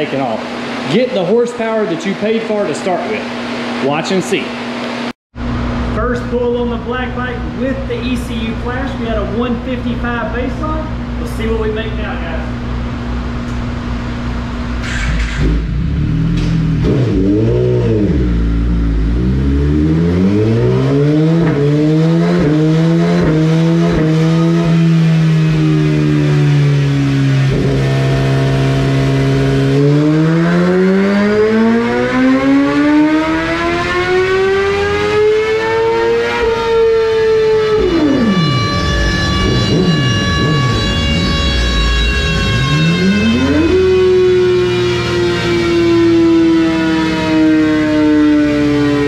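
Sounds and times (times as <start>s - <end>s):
motorcycle engine revving on dyno: 0.0s - 49.0s.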